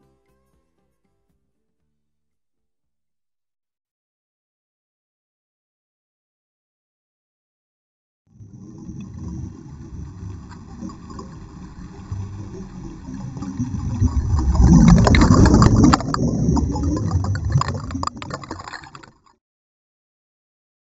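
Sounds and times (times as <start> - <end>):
underwater air bubbles gurgling: 8.4 - 19.3.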